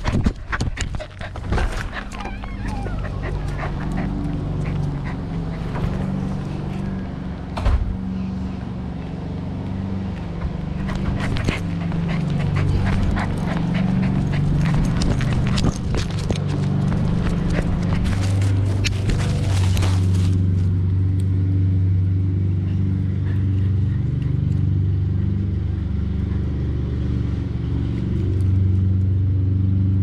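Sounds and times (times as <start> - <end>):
dog panting: 0.0 - 7.0, 10.4 - 20.2.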